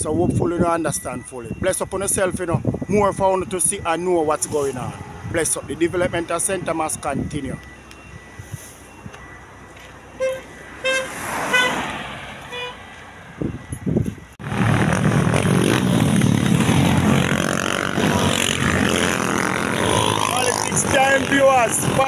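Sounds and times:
road traffic passing: 0.0s - 22.0s
car horn toots: 10.2s - 12.9s.

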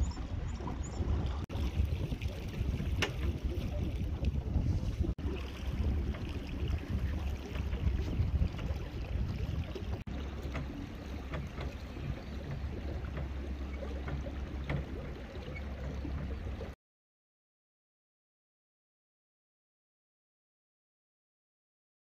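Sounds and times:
wind on microphone: 0.0s - 16.8s
small boat motor droning: 5.2s - 16.8s.

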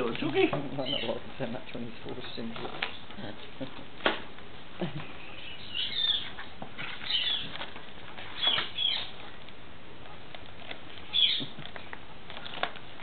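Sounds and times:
bird scratching in cardboard box: 5.9s - 9.2s.

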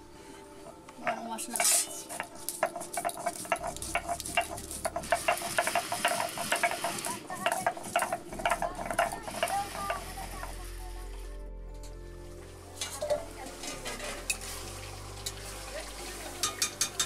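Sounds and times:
spices crunching under stone roller: 0.6s - 11.1s
stone scraping on stone: 1.0s - 10.0s.

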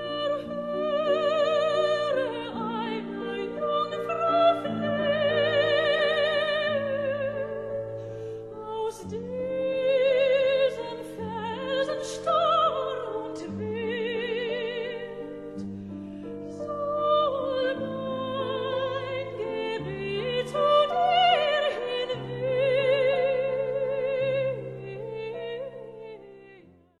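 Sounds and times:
operatic singing with vibrato: 0.0s - 15.6s, 16.3s - 26.6s.

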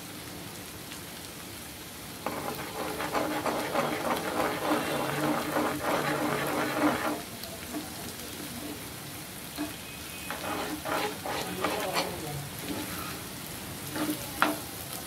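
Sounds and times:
egg frying sizzle: 0.6s - 15.0s
spatula scraping pan: 2.2s - 8.8s, 9.5s - 14.7s.

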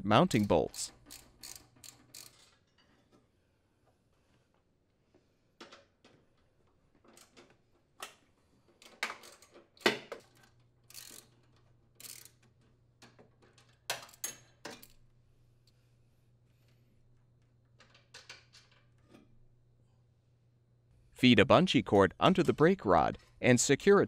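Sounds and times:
socket wrench clicking on bolts: 0.3s - 2.6s.

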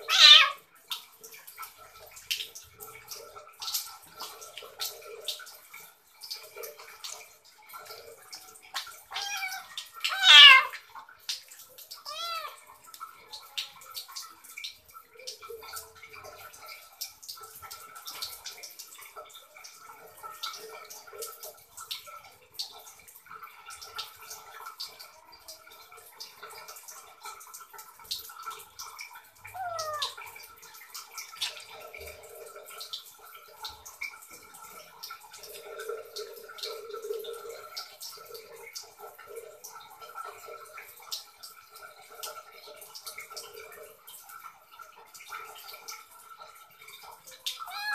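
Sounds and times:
wet squelches of lathering: 0.0s - 22.2s, 26.3s - 39.5s, 47.2s - 47.9s
faint running water: 0.0s - 47.9s
water drips: 0.0s - 47.9s.

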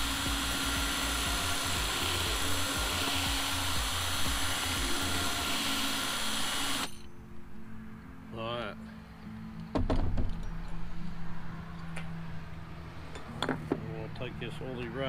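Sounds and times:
cordless drill boring into steel: 0.0s - 7.1s.

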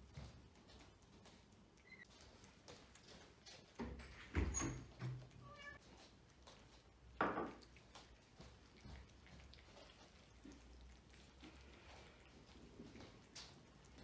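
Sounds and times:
cats eating from plates: 0.0s - 14.0s
cat meowing: 5.4s - 5.8s.

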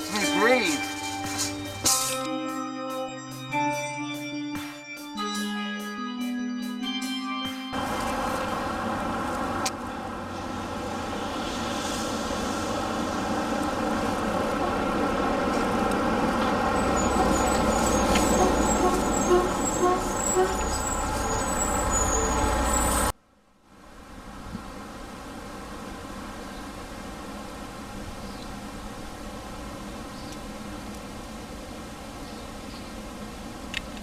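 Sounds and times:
road traffic noise: 0.0s - 2.5s, 7.7s - 34.0s
heavy vehicle engine running: 7.7s - 23.1s.

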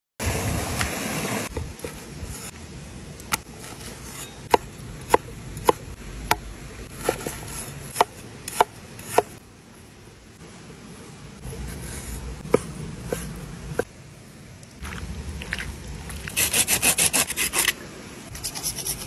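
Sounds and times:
stream water rushing: 0.2s - 2.9s, 12.2s - 18.3s.

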